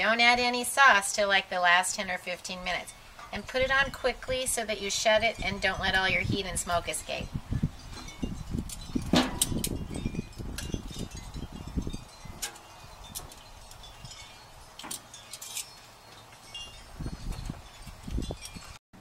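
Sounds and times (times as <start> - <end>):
metal tongs clinking on grill grate: 8.0 - 16.8, 17.7 - 18.7.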